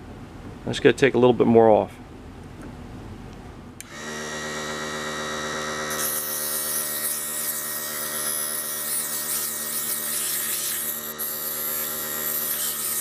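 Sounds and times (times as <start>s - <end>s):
lathe motor hum and whine: 3.8s - 13.0s
sandpaper hissing on spinning wood: 5.9s - 13.0s.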